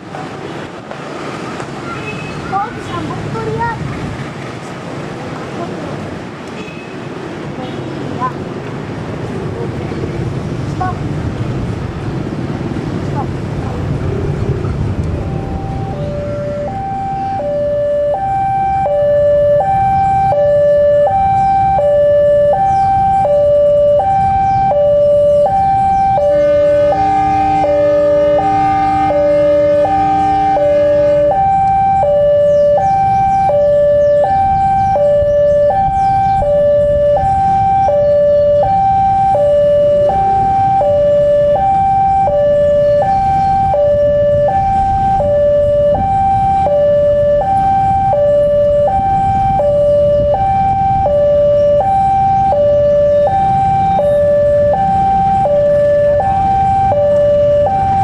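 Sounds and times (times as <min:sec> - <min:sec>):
two-tone electronic warning alarm: 0:15.1 - 0:58.0
chord-like train horn: 0:26.2 - 0:31.4.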